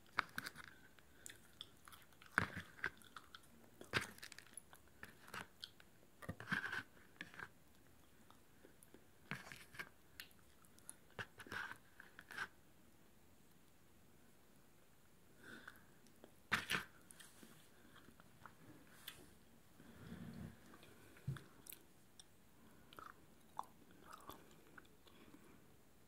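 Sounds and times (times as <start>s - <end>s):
popcorn crunching and chewing: 0.0s - 12.5s, 21.6s - 25.4s.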